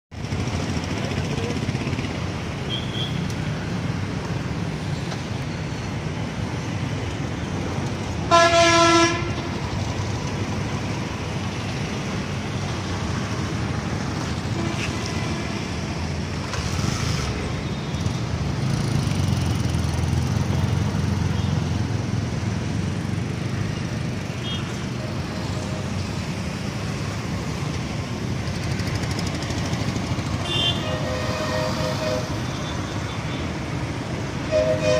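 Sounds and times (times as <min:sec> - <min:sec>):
road traffic: 0:00.1 - 0:34.9
vehicle horn honking: 0:08.3 - 0:09.5, 0:30.4 - 0:32.7, 0:34.5 - 0:34.9.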